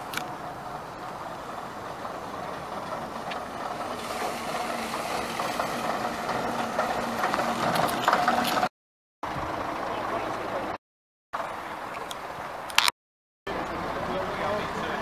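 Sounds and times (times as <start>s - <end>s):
diesel coach engine passing: 0.0s - 10.8s, 13.5s - 15.0s.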